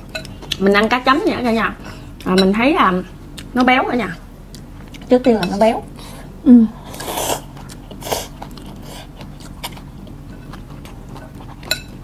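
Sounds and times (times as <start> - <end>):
soft chewing: 4.4 - 12.0
utensil clinking against bowl: 11.6 - 12.0.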